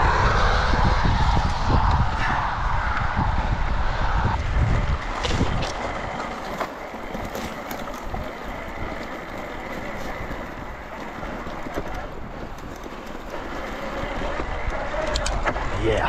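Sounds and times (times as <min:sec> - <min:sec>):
bike tyre rolling noise: 0:00.0 - 0:16.0
wind on microphone: 0:00.0 - 0:16.0
bike clicks and rattles: 0:04.4 - 0:15.8.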